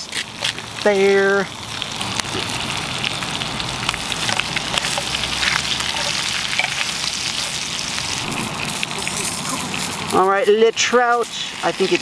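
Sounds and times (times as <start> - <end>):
fish sizzling in oil: 0.0 - 12.0
utensil scraping a pan: 4.3 - 7.6.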